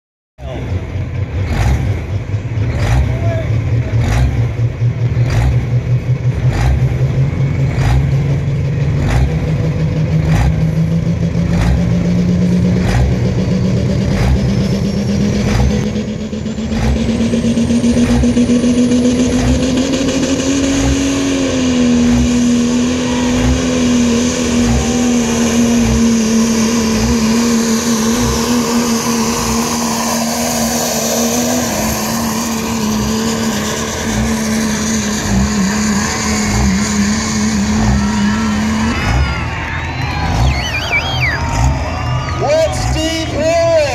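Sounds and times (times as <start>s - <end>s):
diesel truck engine at full throttle: 0.4s - 43.9s
high turbo whistle: 37.8s - 42.5s.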